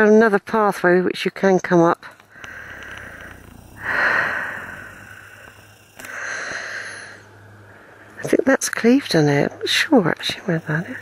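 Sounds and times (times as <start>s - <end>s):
breathy exhales: 2.2s - 8.2s.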